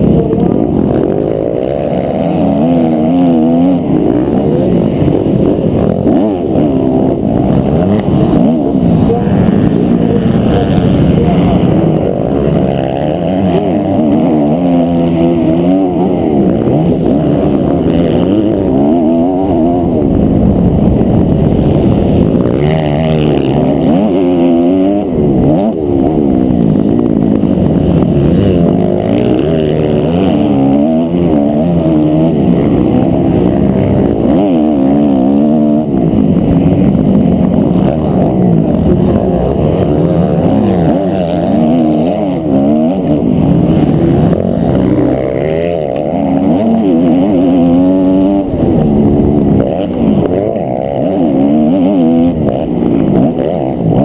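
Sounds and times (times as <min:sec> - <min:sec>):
motocross bike engine racing: 0:00.0 - 0:54.0.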